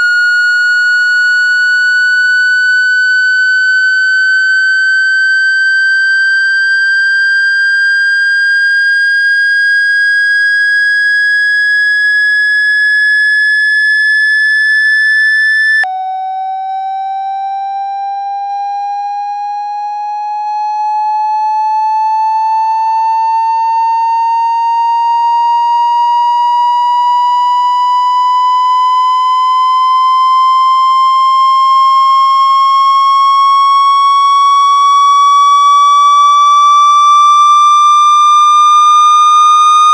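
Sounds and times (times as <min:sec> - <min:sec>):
electronic rising tone: 0:00.0 - 0:19.2.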